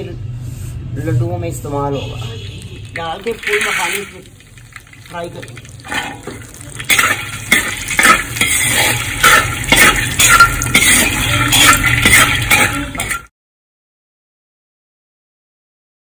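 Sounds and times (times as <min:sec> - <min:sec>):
metal skimmer scraping a wok: 0:02.6 - 0:13.3.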